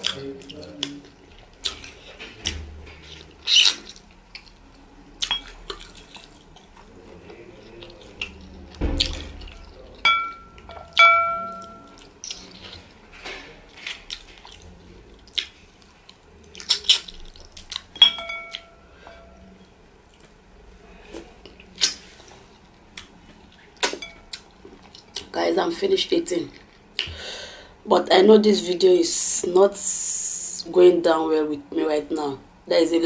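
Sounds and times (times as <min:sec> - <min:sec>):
lip smacking and chewing: 0:00.0 - 0:10.0, 0:10.6 - 0:13.0, 0:13.7 - 0:18.7.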